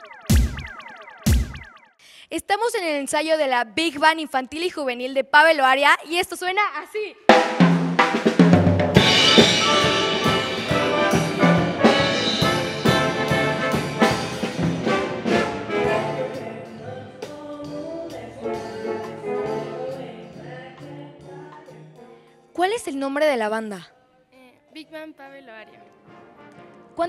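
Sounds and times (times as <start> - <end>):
drum kit: 0.0 - 1.7, 7.3 - 20.9
jazz big band playing: 7.6 - 21.9
trumpets and saxophones: 9.0 - 16.8, 17.5 - 20.2.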